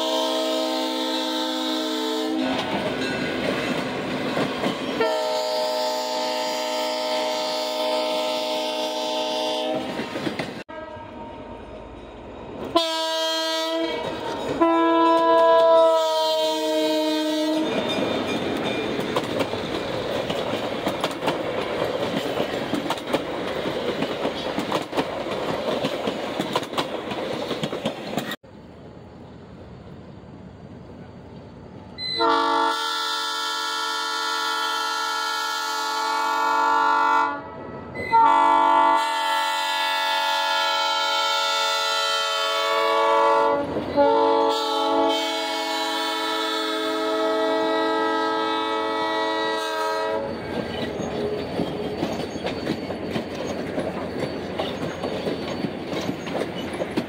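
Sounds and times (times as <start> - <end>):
locomotive air horn blasts: 0.0 - 2.6, 5.0 - 10.1, 10.7 - 11.4, 12.7 - 17.7, 32.0 - 50.4
passing train rumble: 0.0 - 57.0
wheels clicking over rail joints: 17.6 - 28.4, 50.4 - 57.0.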